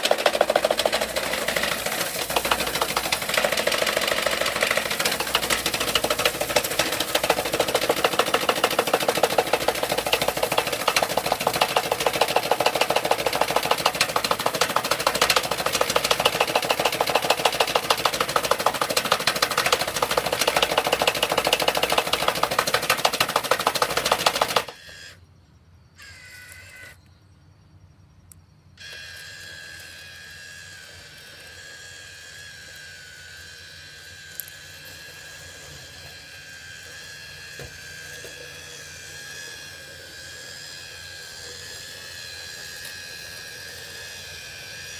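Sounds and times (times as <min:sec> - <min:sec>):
motor and auger whirring: 0:00.0 - 0:25.4, 0:26.0 - 0:27.2, 0:28.8 - 0:44.9
steady quiet whine: 0:24.8 - 0:44.9.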